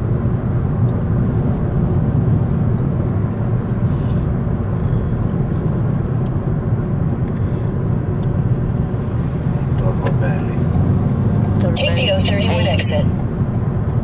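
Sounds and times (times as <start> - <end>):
car road and engine noise: 0.0 - 14.0.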